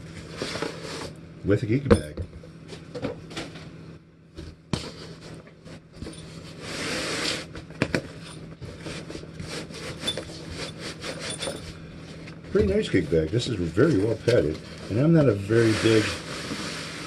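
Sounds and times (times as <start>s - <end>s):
steady low hum: 0.0s - 17.0s
scraping rub: 4.8s - 7.5s, 8.7s - 12.2s, 12.9s - 17.0s.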